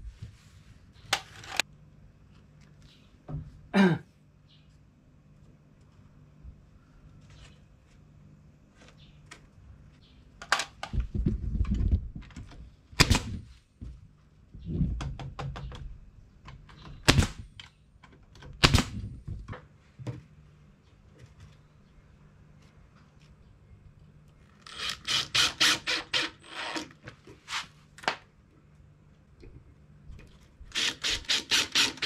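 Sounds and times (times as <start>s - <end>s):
fasteners being driven into wood: 12.3s - 13.4s, 16.5s - 19.1s, 30.7s - 32.0s.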